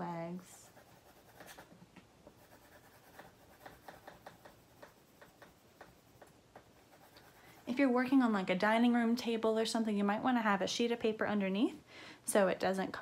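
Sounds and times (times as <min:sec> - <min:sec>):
pencil scratching on paper: 0:00.6 - 0:01.7, 0:02.3 - 0:07.9.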